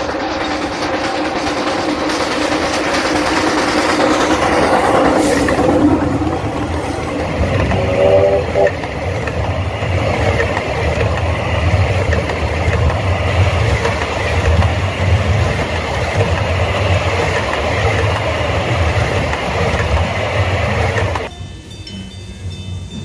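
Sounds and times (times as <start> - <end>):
railroad cars rumbling on rails: 0.0 - 23.0.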